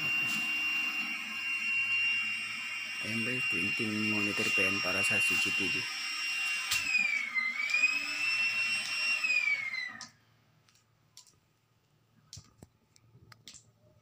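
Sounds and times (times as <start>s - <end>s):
power drill whining: 0.0s - 10.2s.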